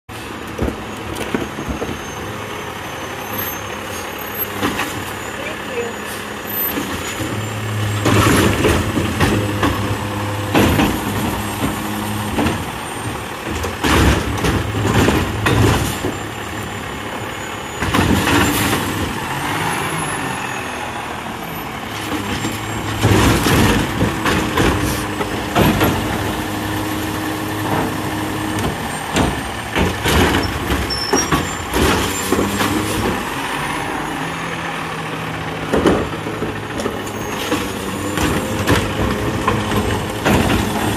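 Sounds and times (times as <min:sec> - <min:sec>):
diesel engine revving: 0:00.2 - 0:40.9
metal clanks and bangs: 0:06.6 - 0:16.5, 0:22.0 - 0:26.7, 0:27.5 - 0:33.3, 0:35.7 - 0:40.9.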